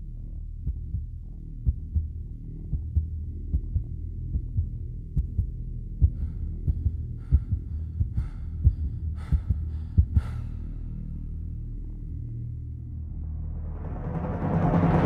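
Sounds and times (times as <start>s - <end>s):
steady low drone: 0.0s - 15.0s
low heartbeat-like thuds: 0.2s - 10.6s.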